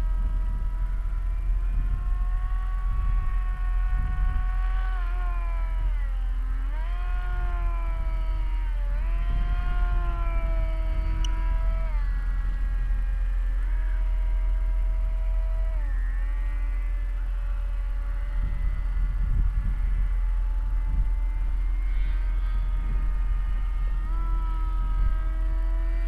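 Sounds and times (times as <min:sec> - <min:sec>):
low rumble: 0:00.0 - 0:26.0
model plane motor whining: 0:00.0 - 0:26.0.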